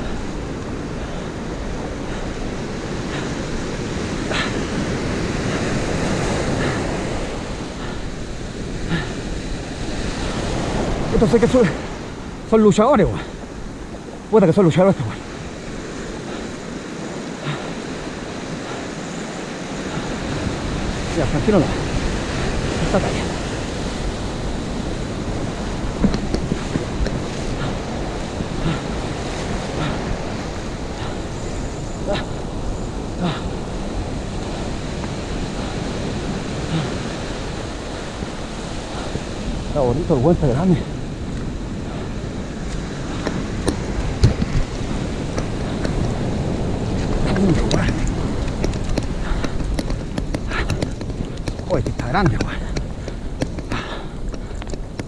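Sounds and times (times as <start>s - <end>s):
surf breaking on rocky shore: 0.0s - 55.0s
wind buffeting microphone: 0.0s - 55.0s.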